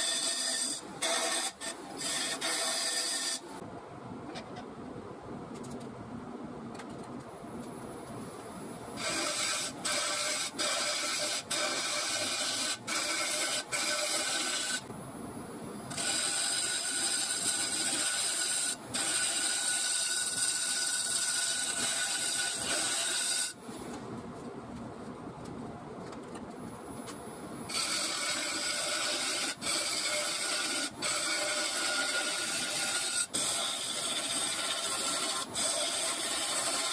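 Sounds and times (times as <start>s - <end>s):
wood lathe running: 0.0s - 3.4s, 9.0s - 14.8s, 15.9s - 23.5s, 27.7s - 36.9s
turning tool scraping wood: 27.7s - 36.9s.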